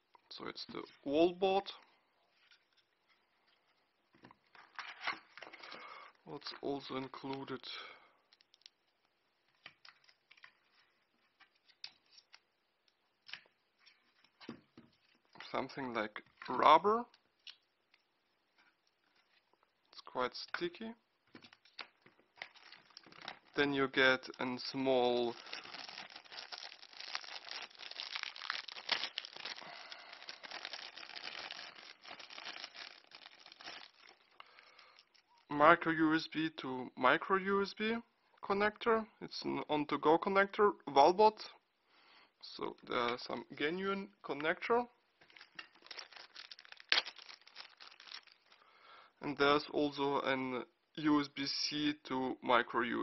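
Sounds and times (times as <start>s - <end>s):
small items rustling on a desk: 8.3s - 15.5s
plastic bag crinkling: 21.5s - 35.3s, 45.2s - 48.7s.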